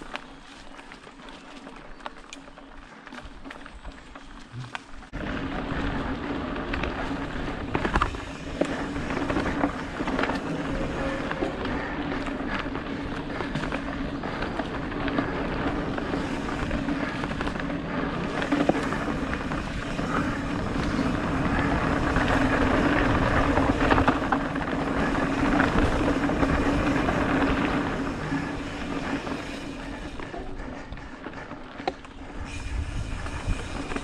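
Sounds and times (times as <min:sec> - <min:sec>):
bike tyres rolling on dirt: 0:00.0 - 0:34.0
wind on microphone: 0:32.2 - 0:34.0.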